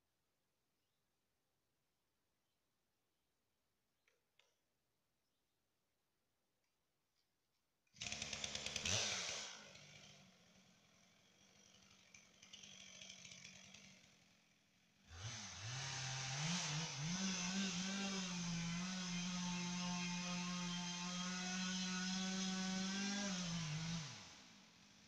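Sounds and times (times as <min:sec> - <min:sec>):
chainsaw engine revving: 0:08.0 - 0:25.0.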